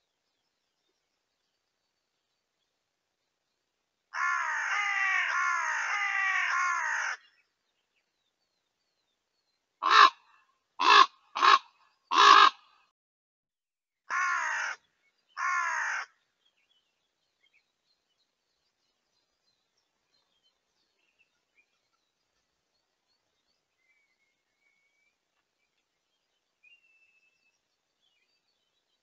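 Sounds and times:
ravens croaking: 4.2 - 7.2, 9.8 - 12.7, 14.1 - 14.8, 15.4 - 16.2.

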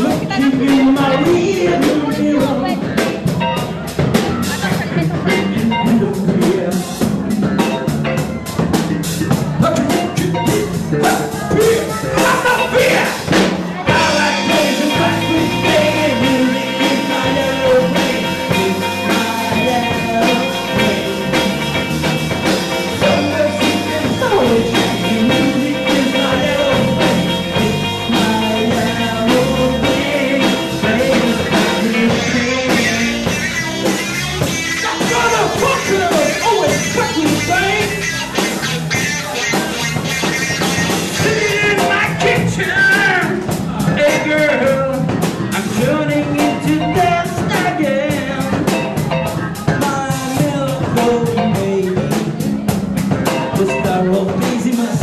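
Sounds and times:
person singing: 0.0 - 3.3, 4.4 - 7.9, 9.2 - 55.0
bass guitar: 0.0 - 55.0
drum kit: 0.0 - 55.0
electric guitar: 0.0 - 55.0.

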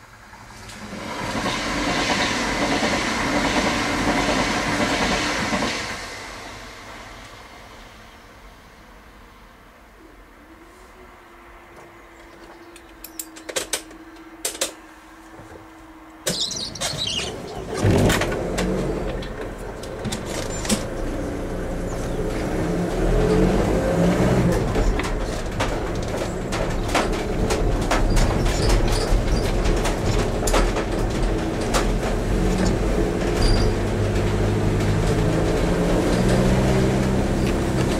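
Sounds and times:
tyre noise on wet road: 16.4 - 37.9
car starting and driving off: 17.0 - 28.3, 29.7 - 37.9.

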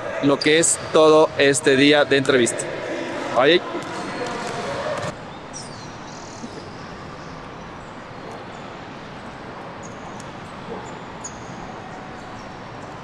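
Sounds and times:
city background noise: 5.1 - 13.0.

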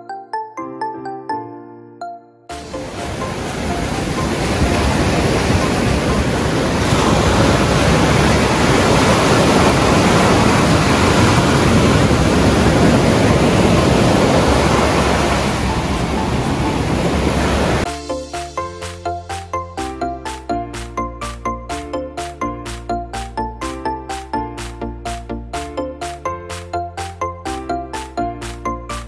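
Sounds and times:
ocean surf breaking: 2.5 - 17.9.

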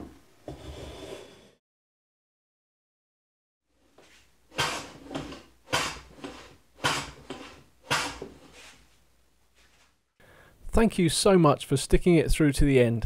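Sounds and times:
hand plane cutting swish: 4.0 - 8.8.

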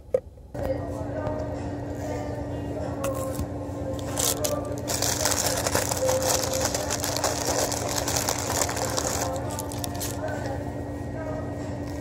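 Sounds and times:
steady low hum: 0.0 - 12.0
paper wrapper crinkling: 4.0 - 10.3.

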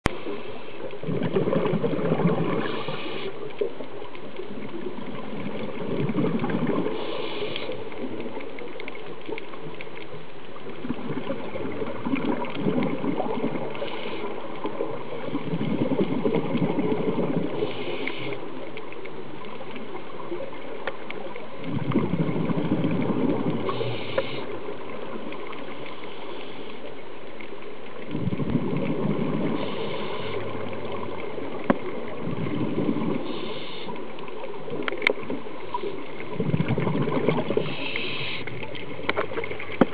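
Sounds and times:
underwater crackle and hiss: 0.0 - 39.9
diver exhaling bubbles: 1.0 - 3.4, 4.6 - 7.5, 10.8 - 18.3, 21.6 - 24.5, 28.1 - 34.0, 35.2 - 39.9
regulator hiss: 6.9 - 7.8, 17.6 - 18.5, 23.7 - 24.7, 29.6 - 30.5, 33.2 - 34.1, 37.6 - 38.5.

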